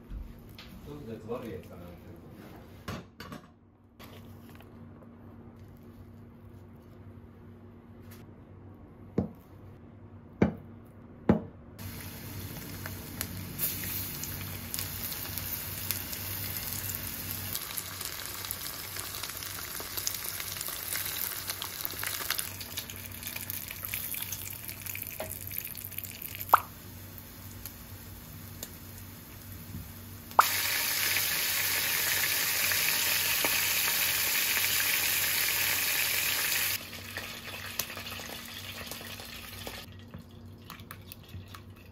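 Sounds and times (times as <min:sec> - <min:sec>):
tofu sizzling in oil: 0:11.8 - 0:39.9
vegetables frying in oil: 0:11.8 - 0:39.9.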